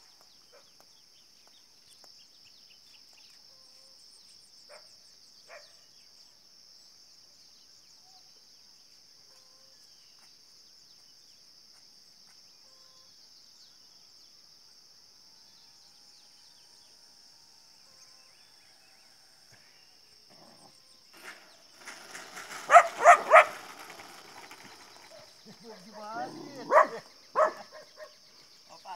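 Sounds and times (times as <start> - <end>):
insects droning: 0.0 - 28.9.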